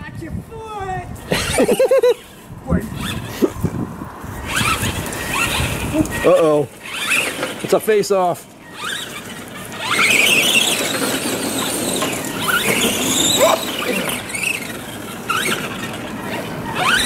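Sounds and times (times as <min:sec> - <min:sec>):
rc truck motors whining: 0:01.2 - 0:03.4, 0:04.4 - 0:17.0.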